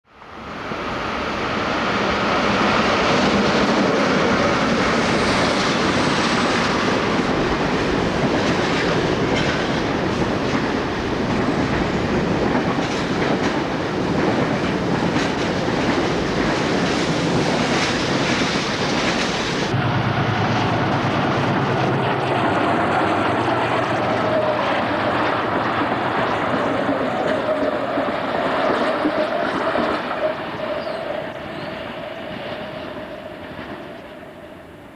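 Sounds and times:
freight train passing: 0:00.1 - 0:34.9
passenger train passing: 0:00.1 - 0:34.9
train wheels clicking over rail joints: 0:05.0 - 0:19.7.

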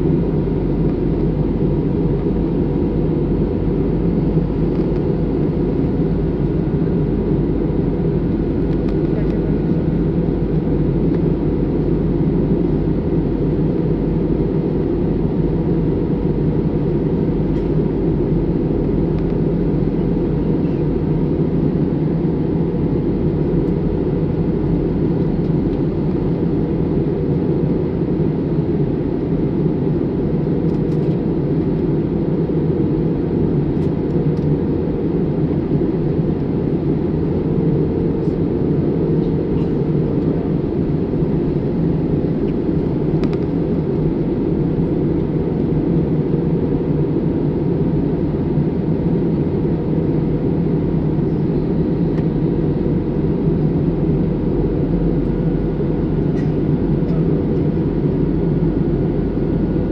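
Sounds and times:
jet engine drone in cabin: 0:00.0 - 0:59.9
low hum: 0:00.0 - 0:59.9.

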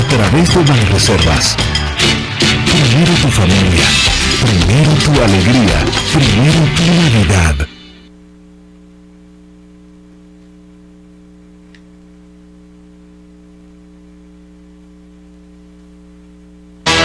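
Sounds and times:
electrical mains hum: 0:06.9 - 0:16.9.

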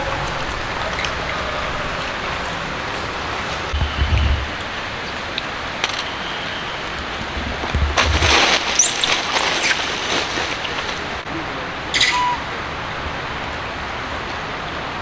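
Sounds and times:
rushing outdoor background noise: 0:00.0 - 0:15.0
rustling: 0:07.6 - 0:11.2
high sliding chirps: 0:08.6 - 0:09.9.

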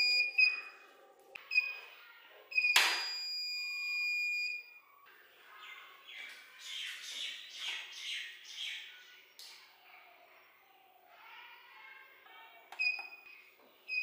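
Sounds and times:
long electronic beep: 0:00.0 - 0:00.7.

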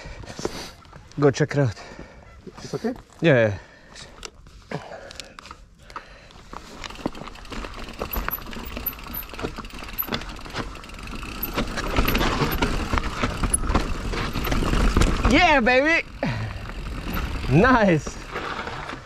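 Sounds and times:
mountain bike rattling on rocks: 0:06.4 - 0:19.0.

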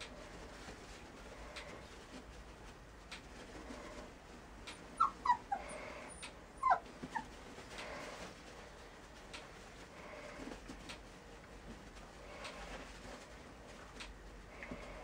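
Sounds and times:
puppies whimpering: 0:04.7 - 0:07.4.

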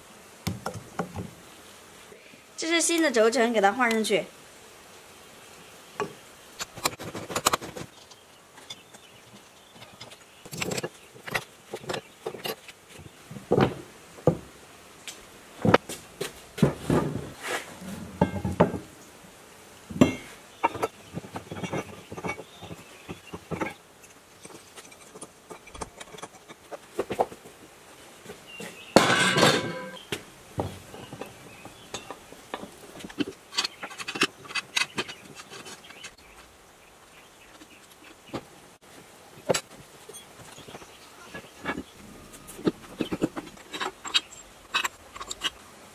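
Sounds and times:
metal parts clattering: 0:09.8 - 0:12.6, 0:20.0 - 0:26.7, 0:29.0 - 0:30.0, 0:33.1 - 0:36.1, 0:41.6 - 0:45.6
metal parts clinking and knocking: 0:09.8 - 0:12.6, 0:20.0 - 0:27.2, 0:29.0 - 0:30.0, 0:33.1 - 0:36.1, 0:41.6 - 0:45.6.

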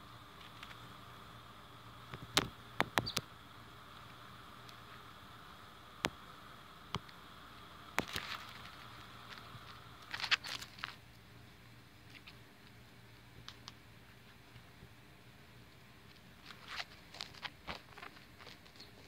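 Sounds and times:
leaves and phone rustling: 0:00.0 - 0:15.0, 0:15.6 - 0:19.0
faint steady hiss: 0:00.0 - 0:19.0.

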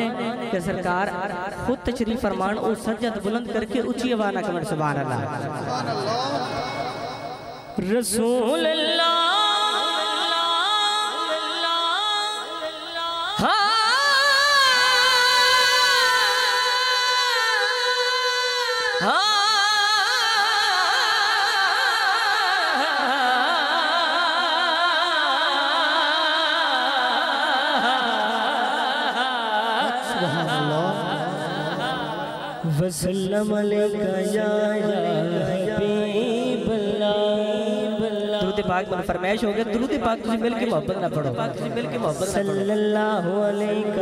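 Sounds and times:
man singing with vibrato: 0:00.0 - 0:44.0.

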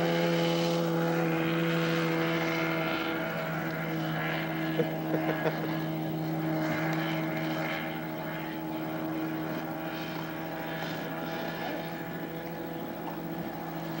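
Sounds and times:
motorboat engine running: 0:00.0 - 0:14.0.

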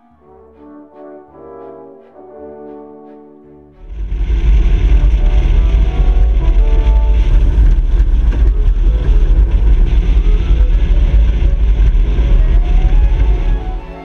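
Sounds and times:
wind buffeting microphone: 0:03.9 - 0:14.0
boat motor running: 0:04.1 - 0:14.0.

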